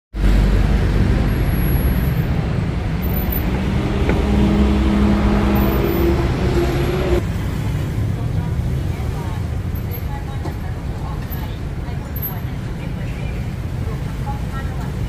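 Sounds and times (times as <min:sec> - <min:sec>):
humming vehicle engine: 0:00.2 - 0:07.2
low traffic engine rumble: 0:00.2 - 0:15.0.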